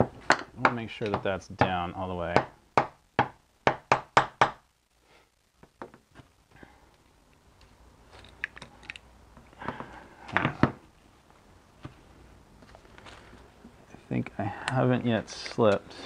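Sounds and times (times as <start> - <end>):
metal parts clicking: 8.1 - 9.1.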